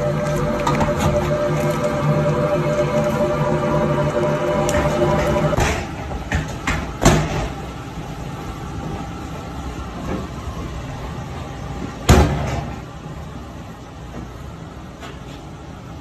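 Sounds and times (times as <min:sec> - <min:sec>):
steady low rumble: 0:00.0 - 0:05.6.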